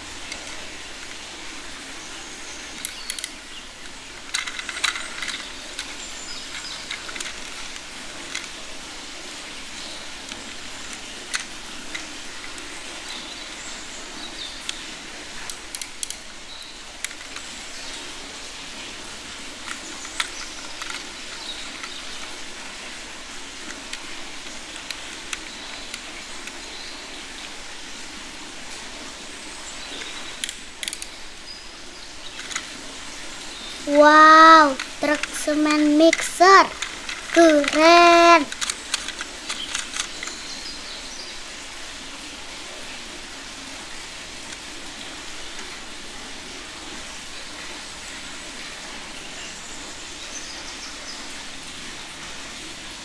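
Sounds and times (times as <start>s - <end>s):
steady background hiss: 0.0s - 53.0s
plastic toy parts clicking: 2.8s - 8.6s, 10.3s - 12.7s, 15.5s - 16.2s, 17.0s - 17.5s, 19.6s - 22.4s, 30.4s - 31.1s, 32.4s - 32.7s, 34.7s - 40.4s
toy screwdriver turning screws: 34.6s - 40.2s.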